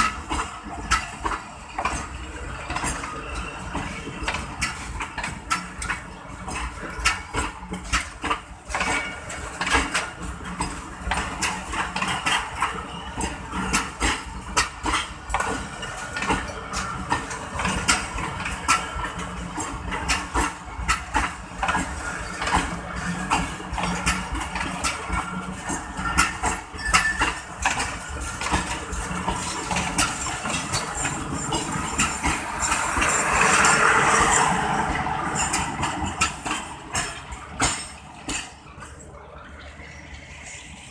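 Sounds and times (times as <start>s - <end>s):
low train rumble: 0.0s - 40.9s
train wheels clattering over rail joints: 0.0s - 40.9s.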